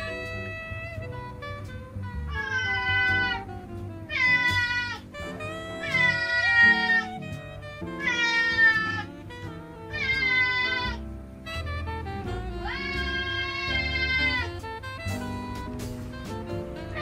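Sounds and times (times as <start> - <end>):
background music: 0.0 - 17.0
cat meowing: 2.3 - 3.4, 4.1 - 5.1, 5.8 - 7.1, 8.0 - 9.1, 9.9 - 11.0, 12.6 - 14.6.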